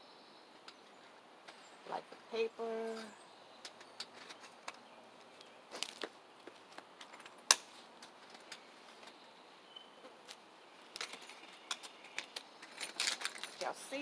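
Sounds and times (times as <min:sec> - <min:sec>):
keys jingling: 0:10.9 - 0:13.8.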